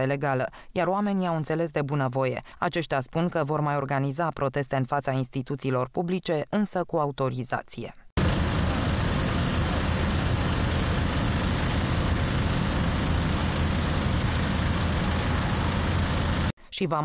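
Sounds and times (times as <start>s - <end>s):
tractor engines running: 8.2s - 16.5s.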